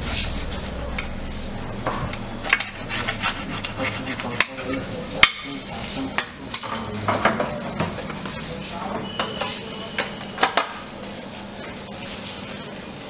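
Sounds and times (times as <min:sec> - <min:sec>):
kitchen clicks and knocks: 0:06.2 - 0:08.3, 0:09.1 - 0:10.8.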